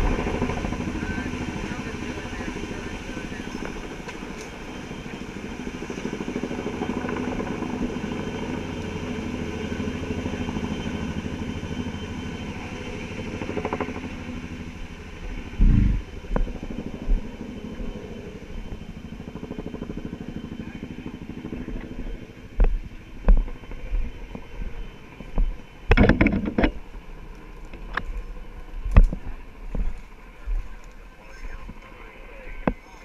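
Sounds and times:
helicopter rotor beating: 0:00.0 - 0:33.0
heavy low thumps: 0:15.6 - 0:16.1.

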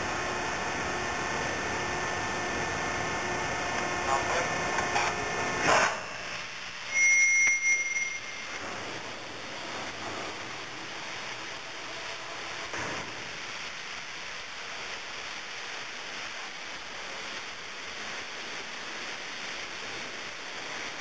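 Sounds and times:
steady rushing noise: 0:00.0 - 0:21.0
high warning beep: 0:06.9 - 0:08.7.

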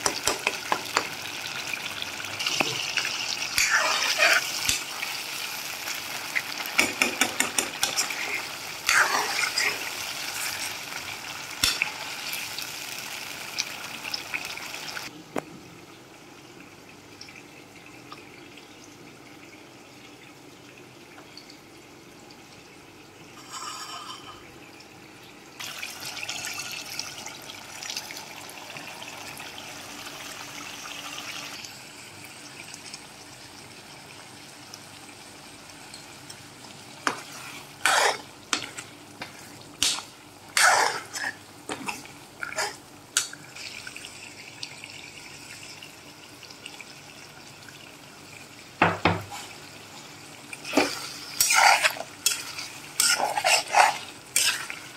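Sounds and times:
spoon knocking against pan: 0:00.0 - 0:01.2, 0:06.8 - 0:07.9
meat sizzling in oil: 0:00.0 - 0:15.1, 0:25.6 - 0:54.9.

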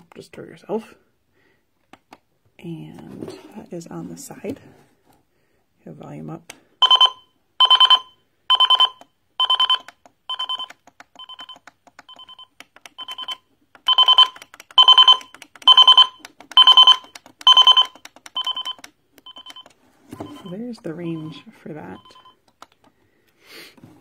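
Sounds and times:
alarm clock beeping: 0:06.8 - 0:22.4.

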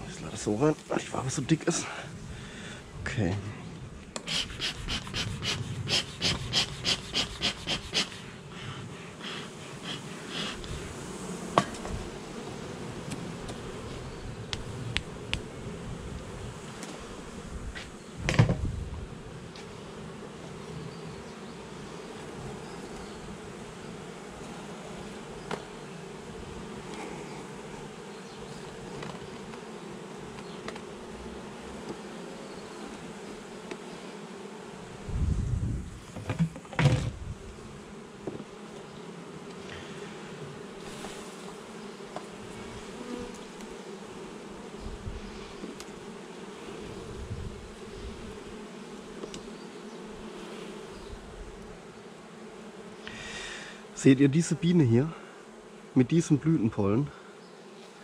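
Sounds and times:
bees buzzing: 0:00.0 - 0:58.0
thump: 0:18.2 - 0:18.7, 0:36.2 - 0:37.2.

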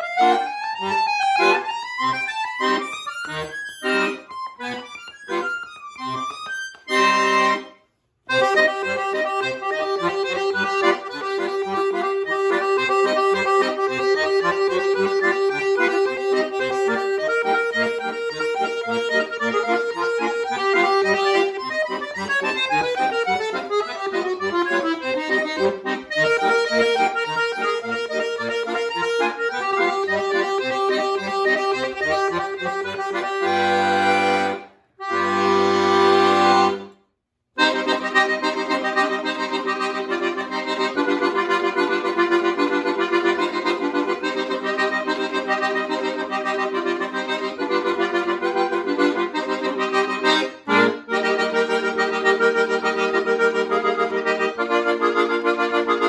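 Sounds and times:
button accordion: 0:00.0 - 0:37.0, 0:37.6 - 0:56.0.

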